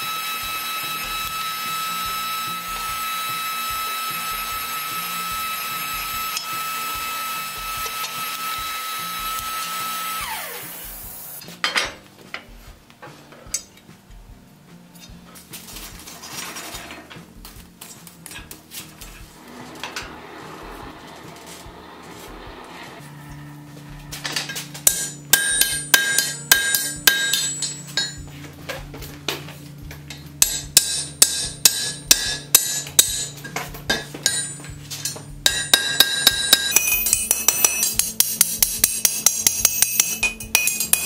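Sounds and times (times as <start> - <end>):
electric motor whining: 0.0 - 11.4, 18.8 - 25.3
metallic clanks and knocks: 11.4 - 13.9, 15.0 - 41.0.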